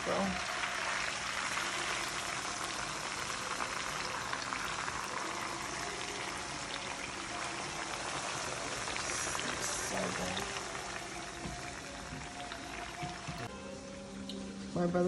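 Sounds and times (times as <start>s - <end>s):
fish frying in sizzling oil: 0.0s - 13.5s.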